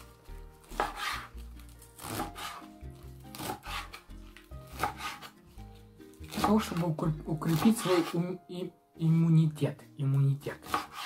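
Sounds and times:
knife slicing lettuce: 0.0 - 8.3, 10.6 - 11.0
background music: 0.0 - 11.0.

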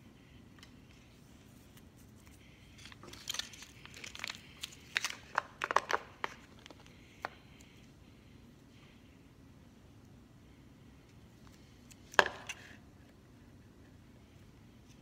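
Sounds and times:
plastic packaging crinkling: 2.8 - 6.9.

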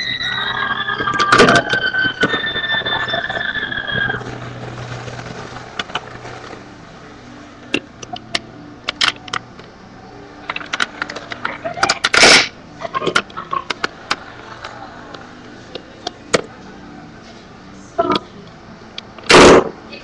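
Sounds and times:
steady high tone: 0.0 - 4.9.

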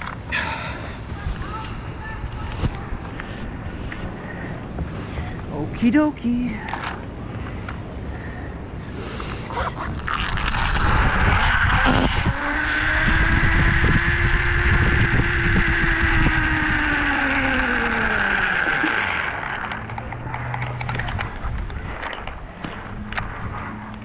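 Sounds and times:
zipline pulleys whining on cable: 0.0 - 4.2, 9.5 - 24.0
wind rushing over microphone: 0.0 - 6.2, 7.1 - 24.0.

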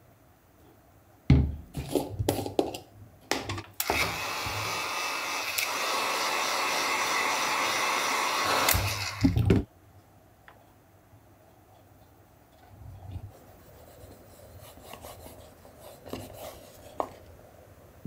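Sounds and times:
tool knocking on table: 1.3 - 1.6
heat gun blowing: 3.8 - 9.4.

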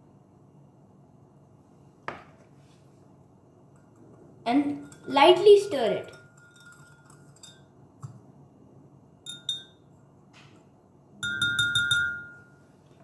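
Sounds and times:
spoon clinking on glass mug: 4.7 - 5.4, 6.0 - 7.7, 9.2 - 9.9, 11.2 - 12.6
whisk clinking in glass mug: 4.7 - 7.7, 9.2 - 9.8, 11.2 - 12.6.

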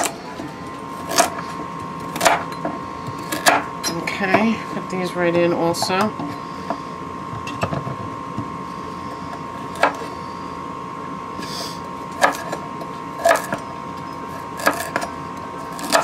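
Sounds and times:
faint high hum: 0.0 - 16.0
knife chopping on wooden board: 12.2 - 12.5.

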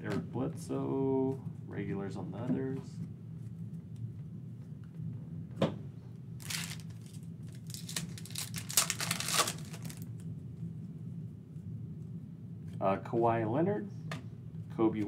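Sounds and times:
foil wrapper tearing and crinkling: 6.4 - 10.1.

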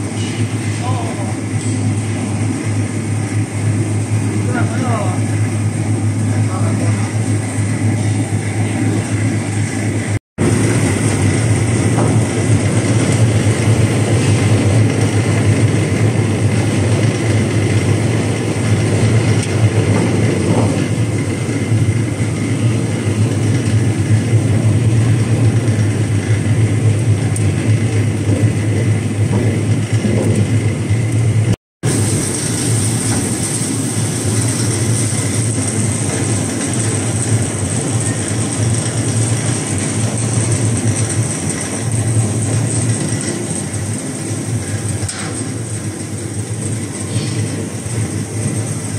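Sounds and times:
machine mechanical hum: 0.0 - 48.9
water spraying: 31.8 - 37.5.

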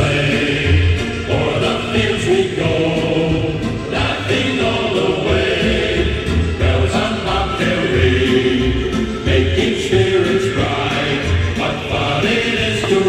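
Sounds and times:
choir singing: 0.0 - 13.0.

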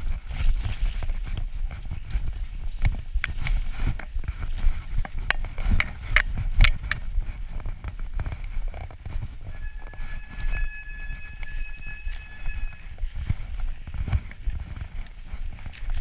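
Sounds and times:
mountain bike rattling on dirt trail: 0.0 - 16.0
faint high-pitched squeal: 9.2 - 13.6.

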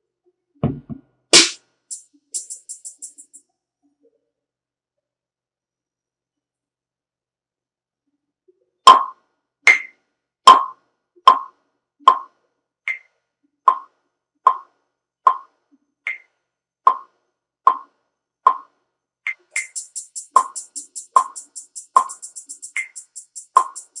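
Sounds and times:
pitched blip sample looping: 1.4 - 3.4, 19.3 - 24.0.

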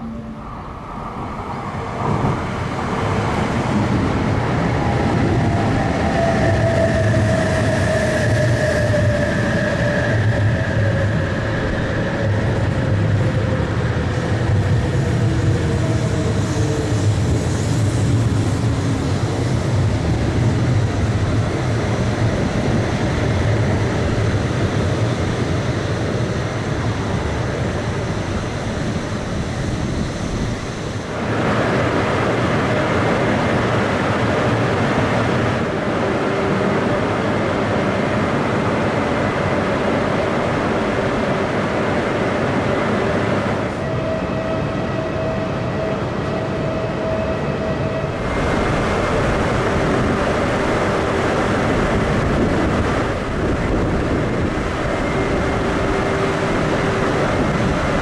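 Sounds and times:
train whine sliding down: 0.0 - 58.0.

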